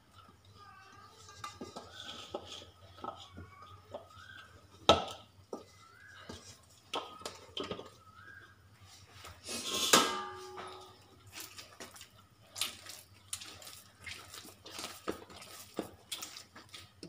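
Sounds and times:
dough worked in metal bowl: 0.0 - 17.0.

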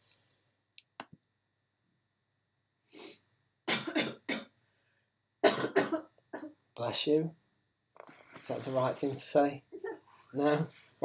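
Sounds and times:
man coughing: 3.7 - 4.5, 5.4 - 6.6.

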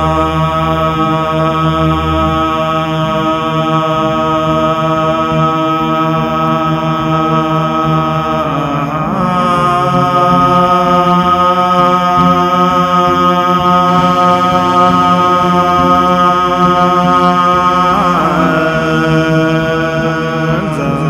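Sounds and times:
low voices chanting: 0.0 - 21.0.

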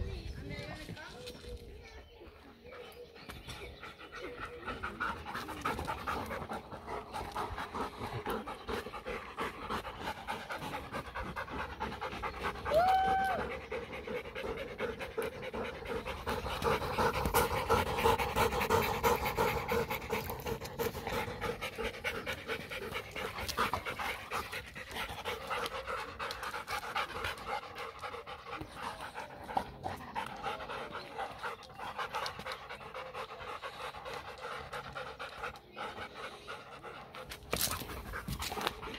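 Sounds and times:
dogs panting rapidly: 0.0 - 38.9.

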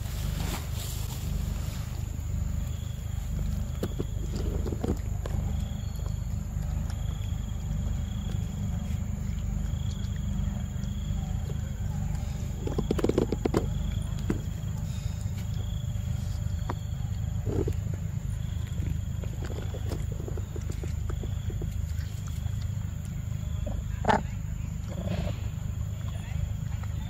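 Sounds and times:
steady low rumble: 0.0 - 27.0
monkey chewing mango: 0.2 - 27.0.

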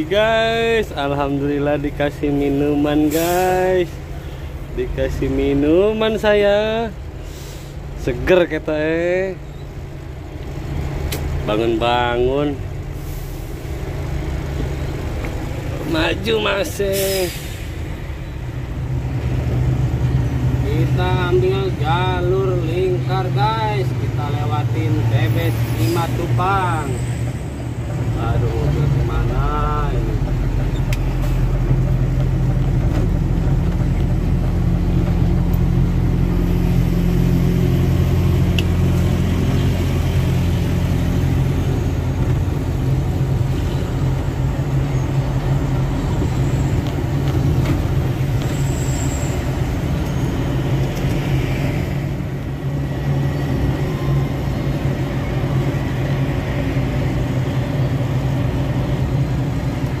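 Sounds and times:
road noise: 0.0 - 60.0
truck diesel engine drone: 0.0 - 60.0.

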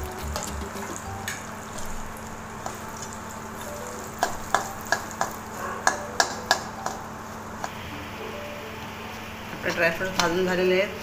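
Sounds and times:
ghee sizzling: 0.0 - 11.0
metal spatula clicking on pan: 4.2 - 7.0.

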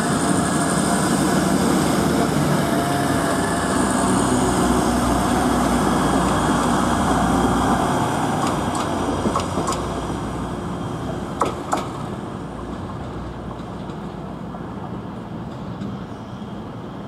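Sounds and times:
diesel train passing: 0.0 - 17.0
wheels clicking over rail joints: 8.3 - 10.0, 11.0 - 14.3.

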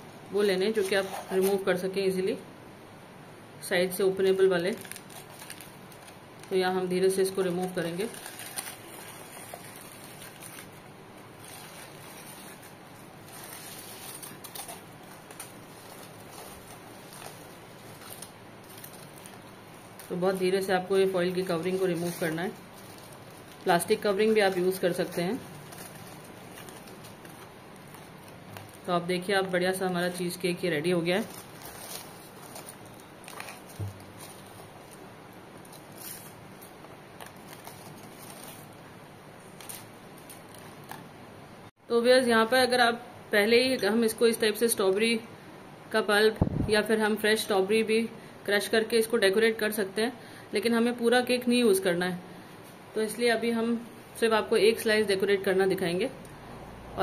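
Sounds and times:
aluminium foil crinkling: 4.2 - 41.1.

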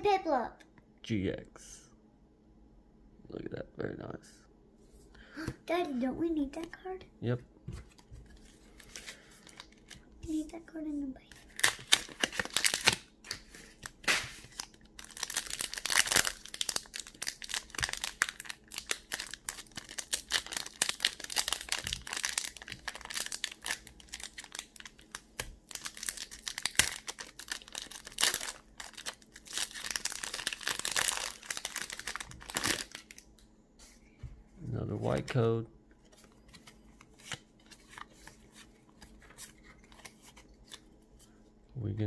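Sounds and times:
foil wrapper crinkling and tearing: 11.4 - 33.3.

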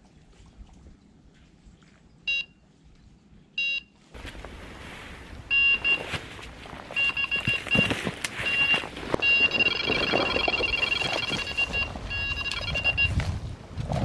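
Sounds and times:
rustling and movement: 4.0 - 14.0
bite alarm bleeps: 7.0 - 13.2.

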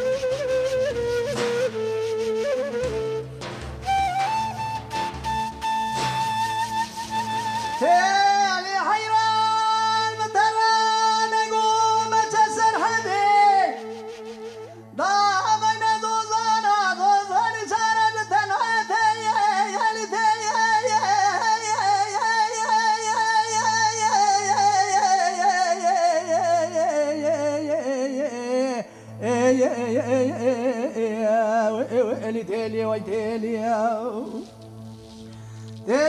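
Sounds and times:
man singing into a microphone: 7.8 - 34.5.

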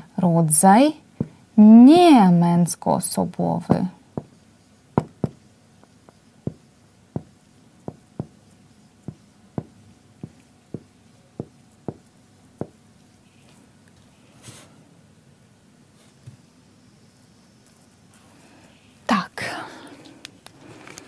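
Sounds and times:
marker tapping on whiteboard: 1.2 - 1.4, 3.7 - 12.8.

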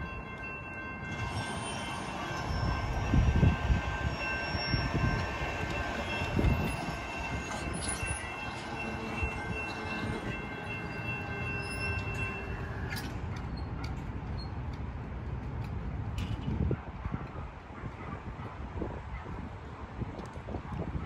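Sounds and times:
railroad crossing bells ringing: 0.0 - 13.8
train rumble: 0.0 - 17.5.

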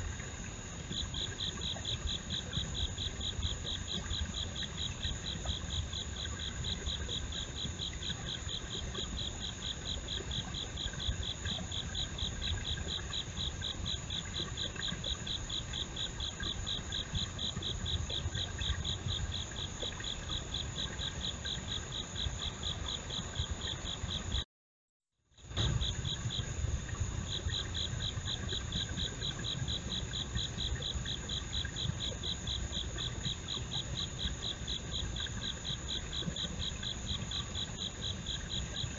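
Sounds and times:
insect trill: 0.0 - 24.4, 25.4 - 38.9
insects chirping: 0.0 - 24.4, 25.4 - 38.9.

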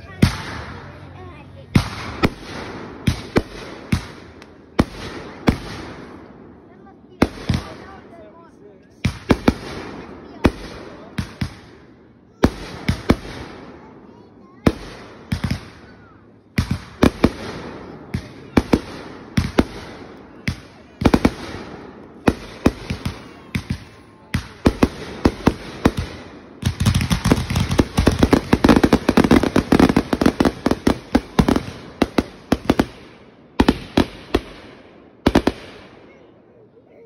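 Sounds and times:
firework bangs: 0.0 - 8.1, 9.0 - 36.1
firework crackling: 12.4 - 36.0.

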